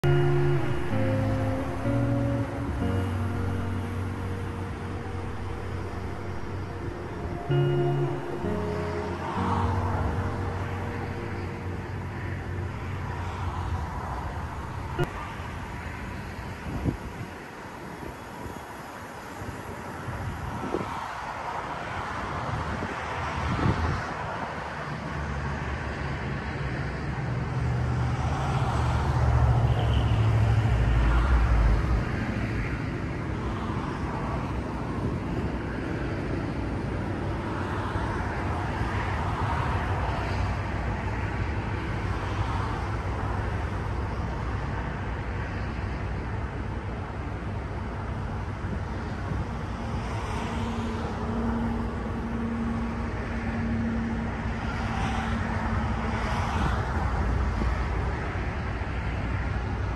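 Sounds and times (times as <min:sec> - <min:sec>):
rushing wind: 0:00.0 - 0:27.6.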